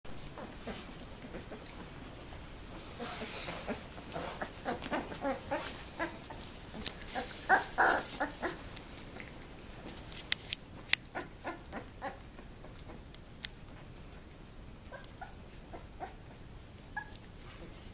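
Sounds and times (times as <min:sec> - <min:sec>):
puppies squeaking and whimpering: 0:02.9 - 0:08.7, 0:14.9 - 0:17.8.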